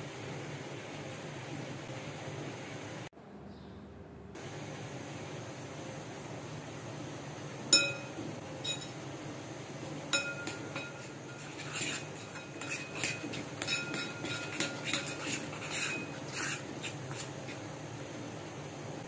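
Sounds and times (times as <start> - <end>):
metal spoon scraping and clinking bowl: 7.8 - 9.0, 10.1 - 17.6.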